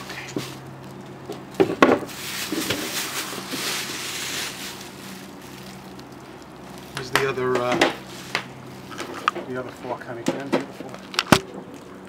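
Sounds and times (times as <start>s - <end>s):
plastic sheeting crinkling: 0.0s - 9.2s.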